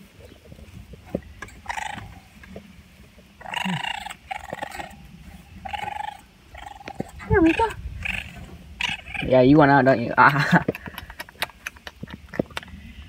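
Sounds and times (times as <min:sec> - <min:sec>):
raccoon churring calls: 0:01.1 - 0:02.7, 0:03.4 - 0:10.2.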